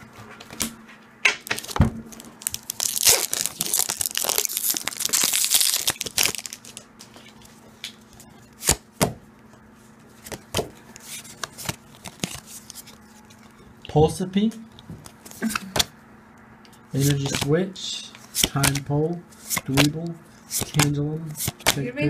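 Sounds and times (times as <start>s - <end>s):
foil wrapper tearing and crinkling: 1.5s - 6.8s
cards clicking: 17.0s - 17.5s, 18.2s - 21.8s.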